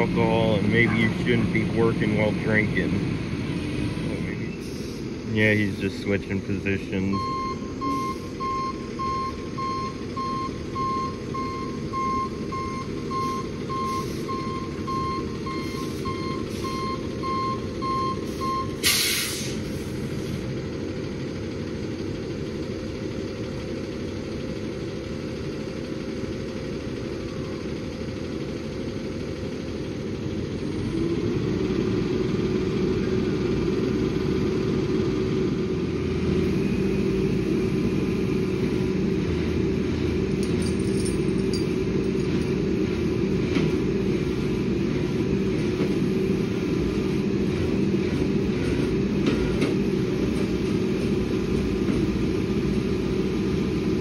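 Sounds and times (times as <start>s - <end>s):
truck reversing beeper: 0.0s - 3.1s, 3.8s - 20.4s, 32.6s - 47.8s
truck engine running: 0.0s - 54.0s
air brakes hissing: 4.5s - 5.2s, 13.2s - 14.4s, 15.6s - 16.9s, 18.2s - 20.4s.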